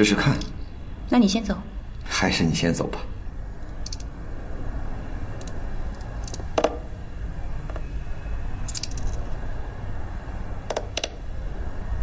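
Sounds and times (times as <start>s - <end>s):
low background rumble: 0.0s - 12.0s
stones clicking on wooden board: 6.2s - 6.9s, 10.7s - 11.2s.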